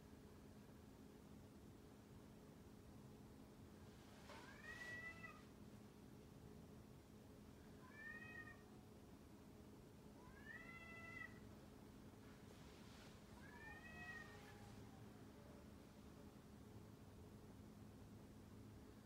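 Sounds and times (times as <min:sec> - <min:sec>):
cat meowing: 0:04.4 - 0:05.5, 0:07.8 - 0:08.7, 0:10.2 - 0:11.4, 0:13.4 - 0:15.1.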